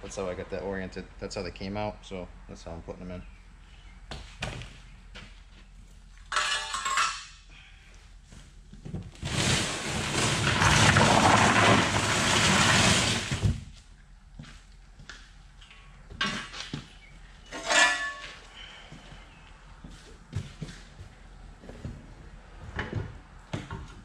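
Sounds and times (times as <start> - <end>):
cardboard rustling and scraping: 8.9 - 13.7.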